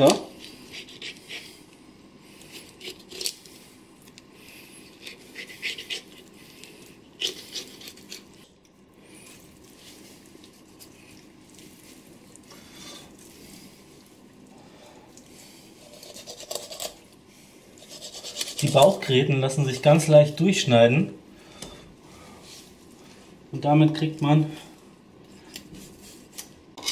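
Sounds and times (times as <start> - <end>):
knife scraping along fish bones: 0.3 - 1.6, 2.4 - 3.6, 4.8 - 8.5, 15.8 - 17.0, 17.8 - 19.1.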